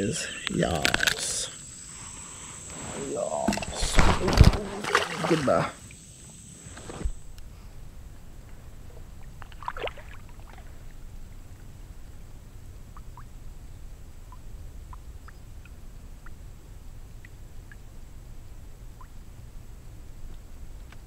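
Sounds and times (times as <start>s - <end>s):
steady low rumble: 7.1s - 21.0s.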